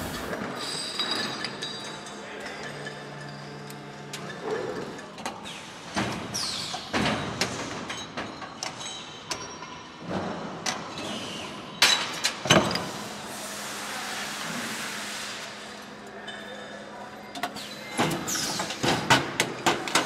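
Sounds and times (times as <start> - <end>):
metal parts clanking and scraping: 0.0 - 5.6.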